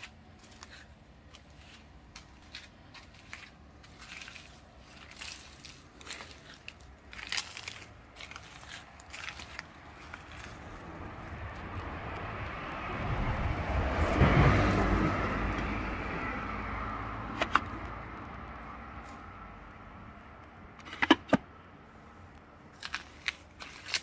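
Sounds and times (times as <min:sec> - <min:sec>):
car passing by: 0:10.1 - 0:19.5.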